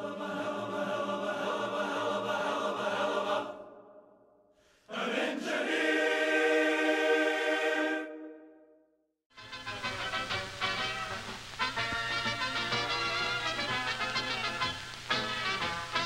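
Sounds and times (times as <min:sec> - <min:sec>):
choir singing held chords: 0:00.0 - 0:08.8.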